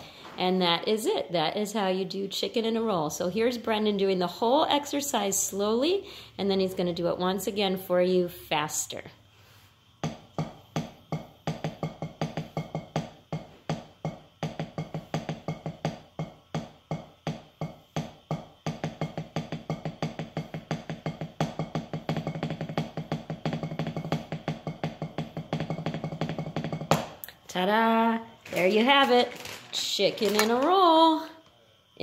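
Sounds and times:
drumsticks striking a practice pad: 10.0s - 27.3s.

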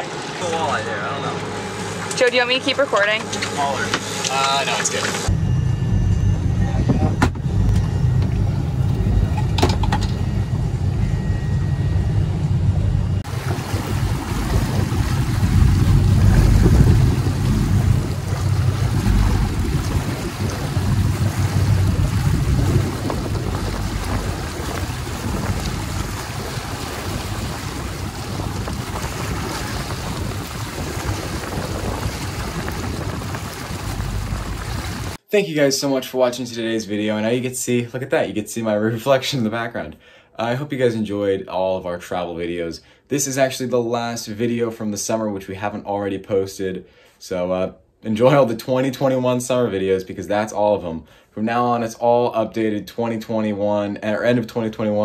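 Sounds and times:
boat engine running: 0.0s - 35.2s
wind and water rushing: 13.2s - 35.2s.

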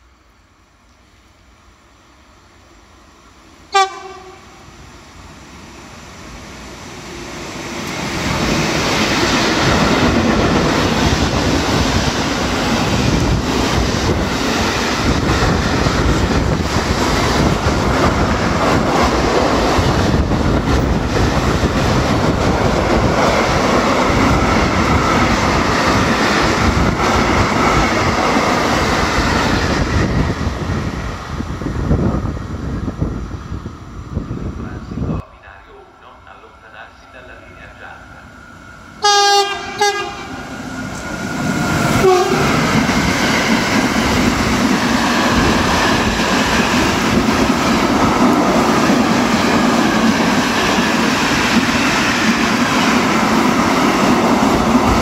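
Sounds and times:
locomotive horn blast: 3.7s - 4.6s, 39.0s - 40.5s, 42.0s - 42.6s
train wheels rumbling on rails: 5.3s - 35.6s, 36.7s - 55.0s.

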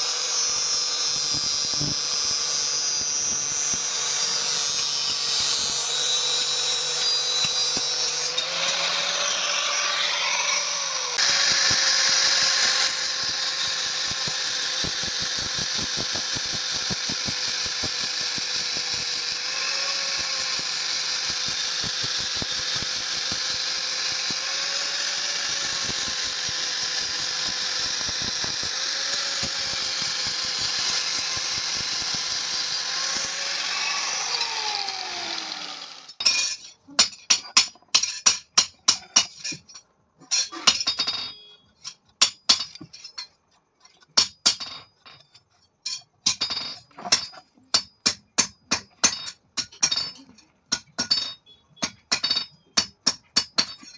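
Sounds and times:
angle grinder grinding steel: 0.0s - 36.2s
grinder spinning down: 0.0s - 36.2s.

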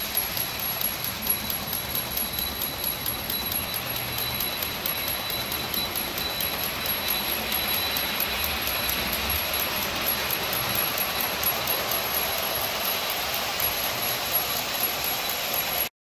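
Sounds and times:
clockwork ticking: 0.0s - 15.9s
small hand bell ringing: 0.0s - 15.9s
toy train running on track: 0.0s - 15.9s.

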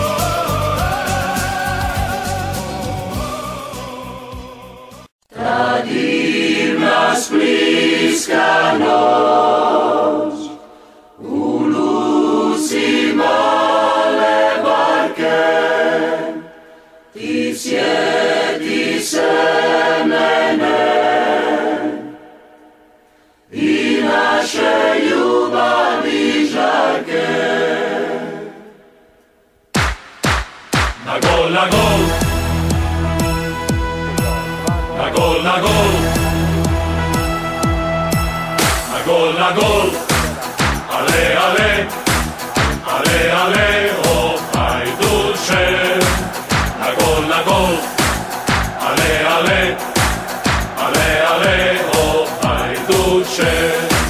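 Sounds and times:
crowd singing a chant: 0.0s - 22.5s, 23.5s - 28.9s, 31.0s - 32.7s, 34.7s - 37.2s, 38.6s - 54.0s.

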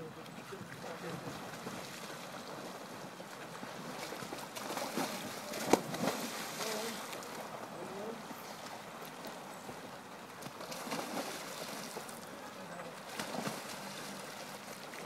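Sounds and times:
swimmers splashing: 0.0s - 15.0s
sharp splash into river: 3.6s - 7.5s, 10.4s - 12.2s, 13.0s - 15.0s.

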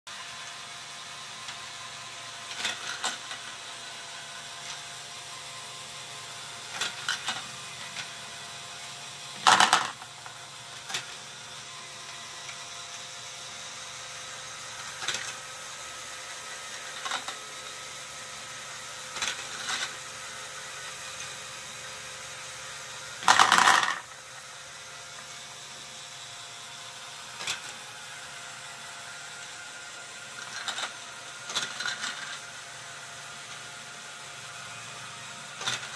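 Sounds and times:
balls clattering into plastic tub: 9.5s - 10.0s, 23.2s - 24.1s
plastic balls clicking: 9.5s - 10.0s, 23.2s - 24.0s.

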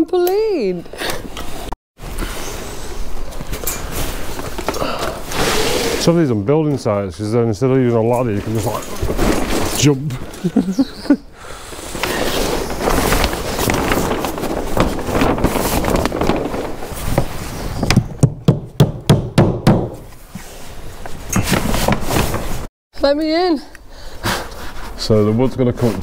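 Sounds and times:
plastic sheet crackling: 11.9s - 17.9s
sharp knocks: 17.9s - 20.1s.

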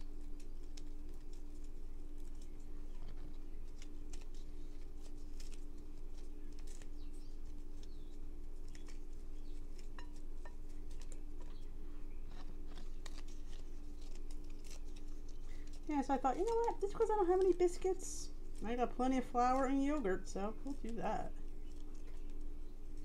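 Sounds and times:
crisp bacon cracking apart: 0.0s - 11.7s, 12.3s - 18.6s
steady low hum: 0.0s - 23.0s.

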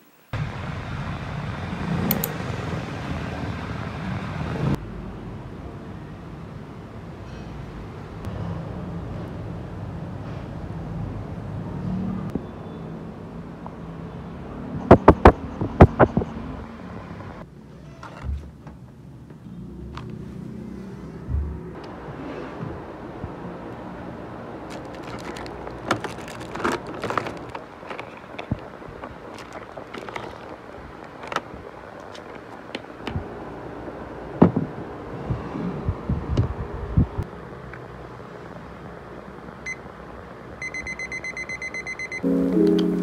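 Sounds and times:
sharp clicks: 2.1s - 2.4s
soft low thumps: 21.2s - 21.8s
low thumps and knocks: 21.2s - 23.4s, 34.4s - 35.4s
notebook handling on desk: 24.7s - 32.8s.

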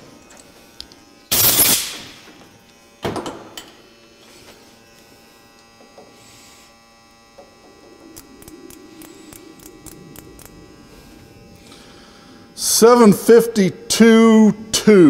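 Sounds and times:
steady electrical hum: 0.0s - 15.0s
loud burst of noise: 1.3s - 2.2s, 7.2s - 13.9s.

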